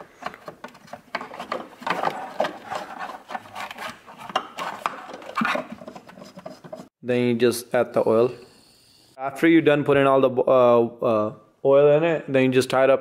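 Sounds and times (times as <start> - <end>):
plastic cap rubbing and scraping: 0.0 - 6.9.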